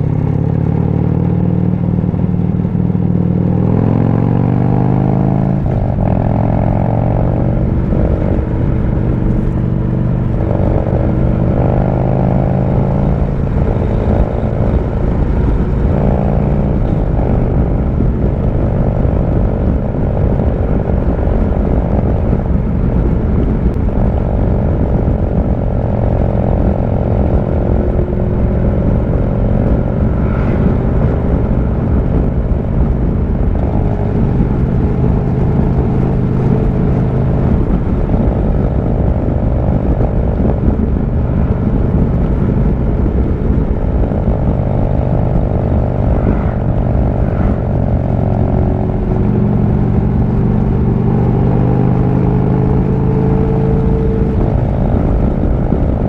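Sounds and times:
motorcycle engine running: 0.0 - 56.0
wind rush on microphone: 0.0 - 56.0.

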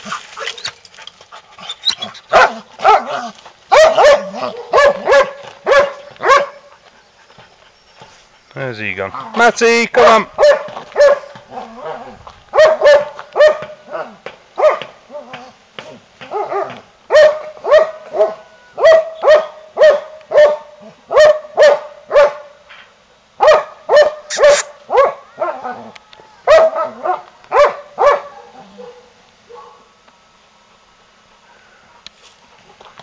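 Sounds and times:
dog barking: 2.3 - 6.6, 10.4 - 14.9, 16.2 - 22.5, 23.4 - 25.6, 26.5 - 29.9.

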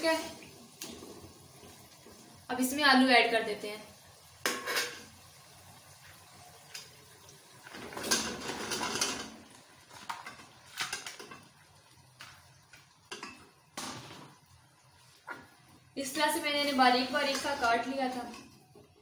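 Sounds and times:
potatoes clattering into metal pot: 7.7 - 11.5, 16.7 - 18.5.

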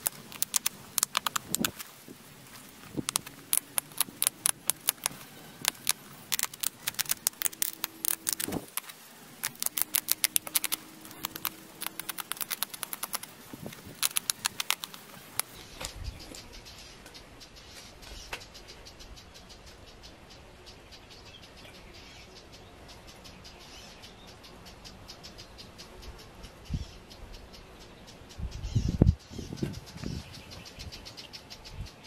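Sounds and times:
flint flakes clicking: 0.0 - 1.9, 3.0 - 15.6.

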